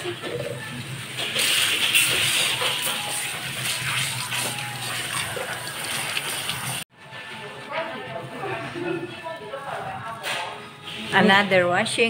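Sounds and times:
water spraying from shower nozzle: 1.2 - 6.8.

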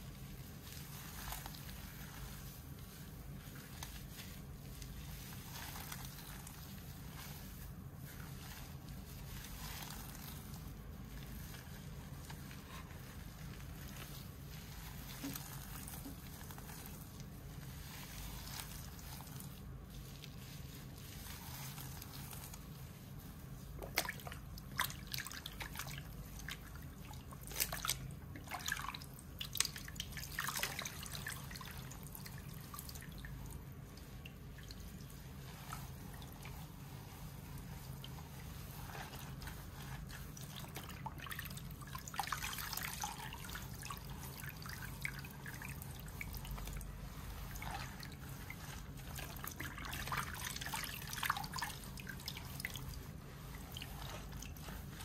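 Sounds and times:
towel rubbing wet hair: 0.0 - 55.0
water squishing out: 23.8 - 55.0.

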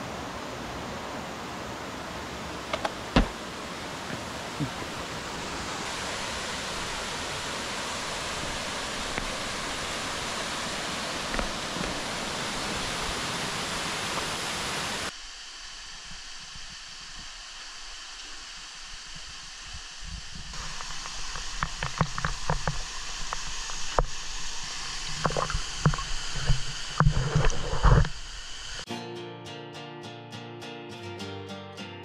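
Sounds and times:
thin hiss: 4.0 - 28.9.

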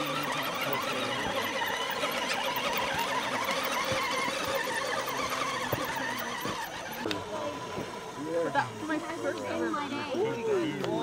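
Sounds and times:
tyres clicking on loose rock: 0.0 - 7.2
toy truck electric motor whining: 0.0 - 11.0.

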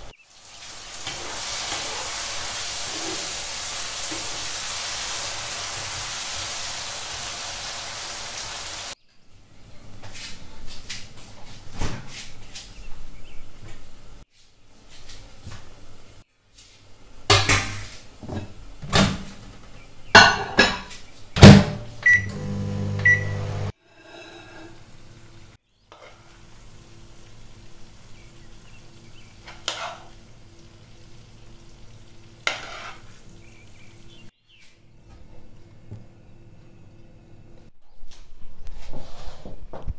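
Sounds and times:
dishes clattering: 17.3 - 19.3, 20.1 - 21.8
microwave humming: 21.4 - 23.8
microwave beeping: 22.0 - 23.7.

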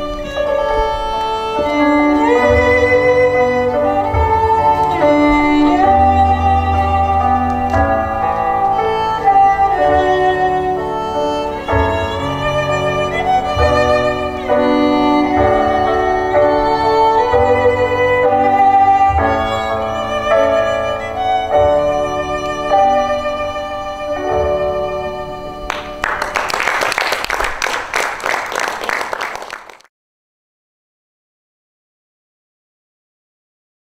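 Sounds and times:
violin melody: 0.0 - 26.5.

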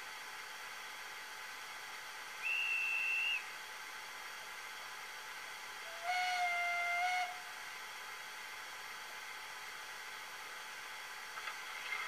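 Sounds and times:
faint steady hiss: 0.0 - 12.0
short high whistle: 2.4 - 3.5
low multi-tone steam whistle: 2.4 - 3.7, 5.7 - 7.8.

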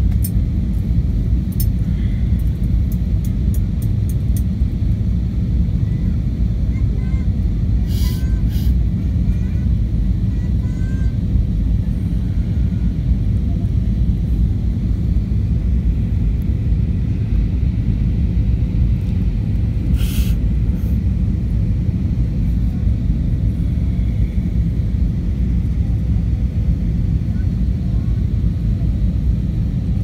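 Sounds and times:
airplane cabin engine rumble: 0.0 - 30.0
short hiss: 19.9 - 20.4.

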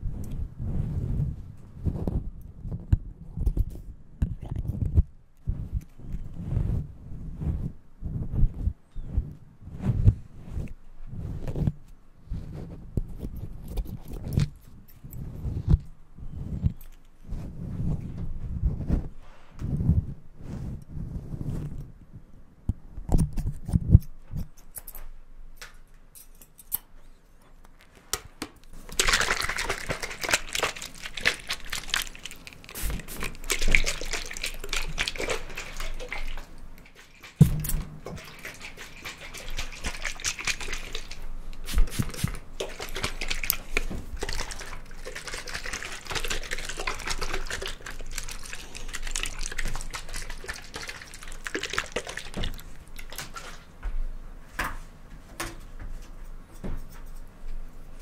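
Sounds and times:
fingers rubbing microphone windscreen: 0.1 - 14.6, 15.2 - 21.8.

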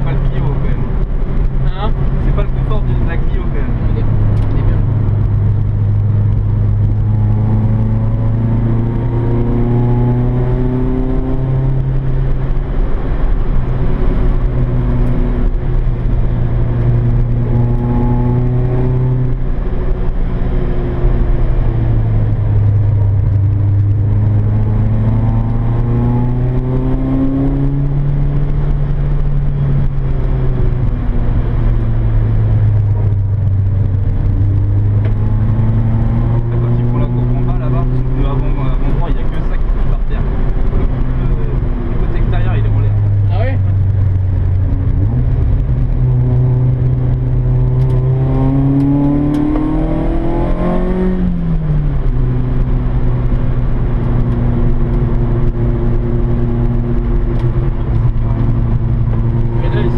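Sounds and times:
car engine revving: 0.0 - 59.9.

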